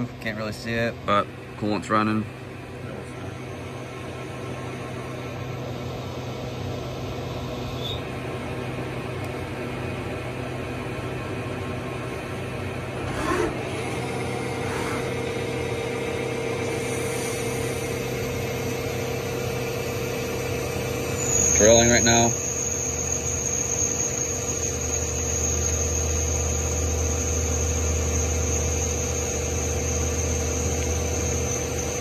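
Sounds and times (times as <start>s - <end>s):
high machine whine: 0.0s - 32.0s
lathe machine hum: 0.0s - 32.0s
whir sweeping up and down: 12.8s - 32.0s.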